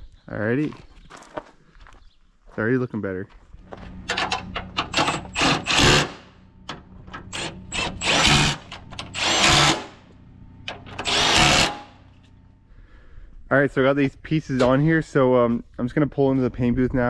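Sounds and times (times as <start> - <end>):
power tool short bursts: 7.3 - 10.0, 10.9 - 11.9.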